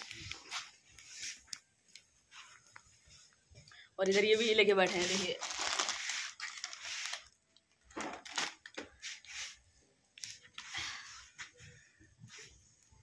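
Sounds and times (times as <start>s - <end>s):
plastic snack packet crinkling: 4.0s - 8.8s.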